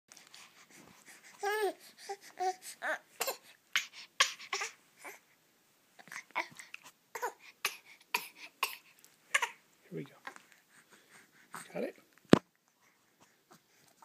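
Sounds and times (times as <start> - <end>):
baby whimpering: 1.1 - 5.2, 6.0 - 8.6
baby crying: 1.4 - 5.2.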